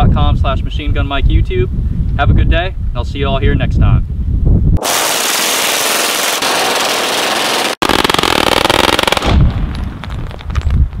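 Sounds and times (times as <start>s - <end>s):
submachine gun bursts: 4.8s - 9.3s.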